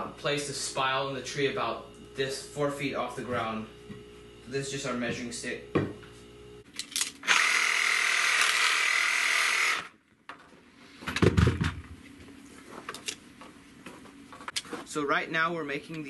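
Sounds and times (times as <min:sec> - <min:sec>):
reciprocating saw running: 0:07.2 - 0:10.0.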